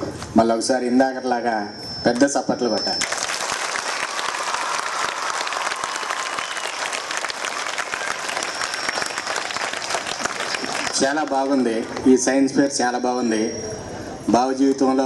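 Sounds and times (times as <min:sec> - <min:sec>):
crowd applauding: 0:03.0 - 0:12.1.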